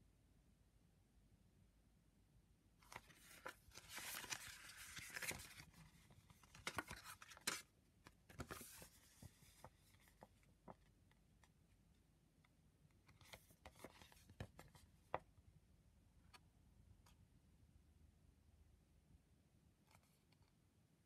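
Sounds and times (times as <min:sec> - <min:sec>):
paper booklet rustling: 0:02.8 - 0:11.0, 0:13.1 - 0:15.2.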